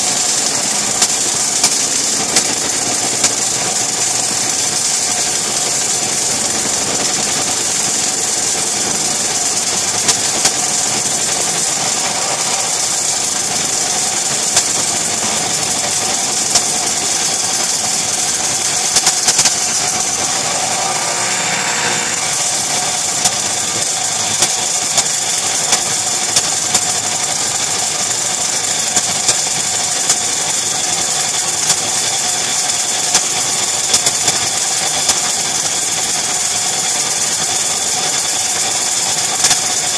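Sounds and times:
router and table saw running: 0.0s - 39.9s.

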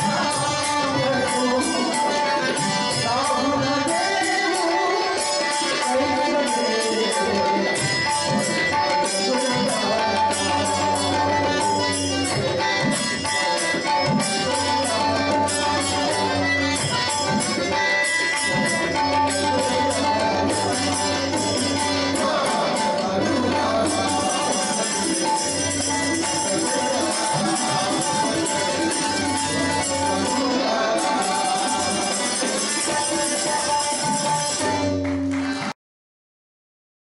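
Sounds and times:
harmonium melody: 0.0s - 35.8s
hand drum rhythm: 6.4s - 35.7s.

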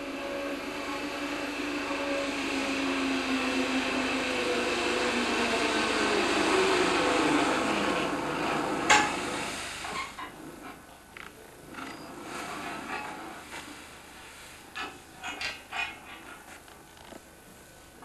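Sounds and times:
cableway whirring: 0.0s - 10.6s.

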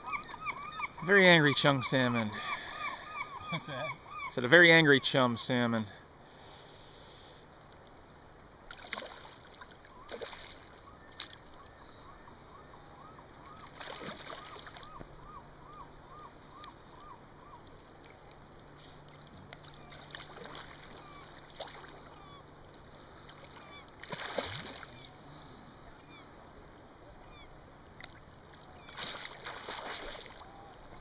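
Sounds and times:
water lapping: 8.6s - 26.2s, 27.3s - 31.0s
fish thrashing and splashing: 8.7s - 11.5s, 13.7s - 14.9s, 19.0s - 22.1s, 23.3s - 25.0s, 28.9s - 30.4s.

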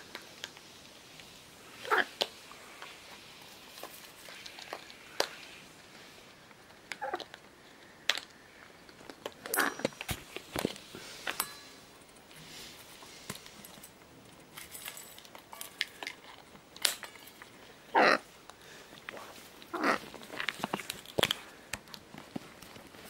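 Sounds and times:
beaks clicking and crunching seeds: 0.1s - 5.6s, 6.3s - 11.4s, 13.0s - 23.0s
macaw calls: 17.9s - 18.3s, 19.7s - 20.1s.

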